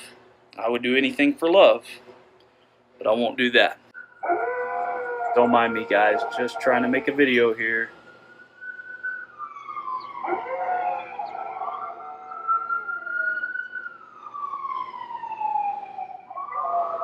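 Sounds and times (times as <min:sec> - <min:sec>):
emergency vehicle siren wailing: 0:04.0 - 0:17.0
dog howling: 0:04.2 - 0:07.6, 0:08.7 - 0:13.8, 0:15.9 - 0:17.0.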